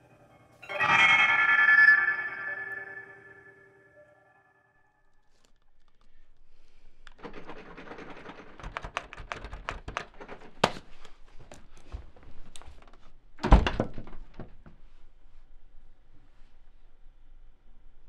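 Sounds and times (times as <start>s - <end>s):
laptop keyboard typing: 7.1s - 10.8s.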